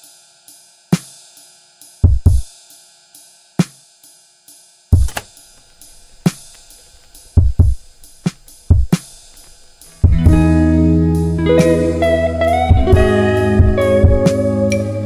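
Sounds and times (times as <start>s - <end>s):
hi-hat ticks: 0.0s - 10.5s
drum machine beat: 2.0s - 2.5s, 4.9s - 14.4s
kick drum thumps: 2.0s - 2.5s, 5.0s - 10.5s, 12.7s - 14.2s
snare hits: 5.0s - 9.9s.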